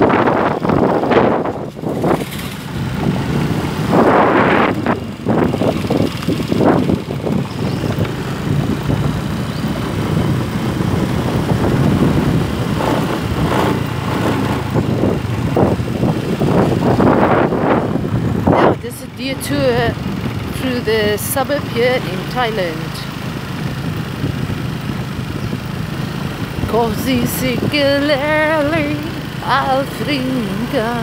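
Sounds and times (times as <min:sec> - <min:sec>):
wind noise on microphone: 0:00.0 - 0:23.1, 0:23.7 - 0:31.0
motor scooter engine: 0:00.0 - 0:31.0.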